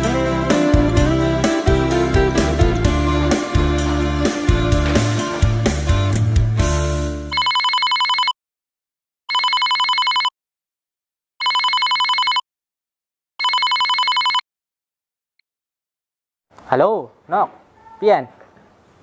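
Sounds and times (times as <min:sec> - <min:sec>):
guitar music: 0:00.0 - 0:07.3
phone ringing with trilling ringtone: 0:07.3 - 0:08.4, 0:09.3 - 0:10.3, 0:11.4 - 0:12.4, 0:13.4 - 0:14.4.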